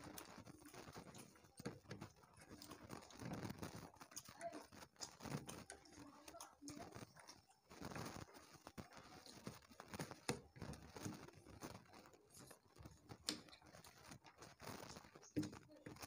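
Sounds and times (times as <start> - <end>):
chewing: 0.0 - 16.0
fingers squishing rice: 0.0 - 16.0.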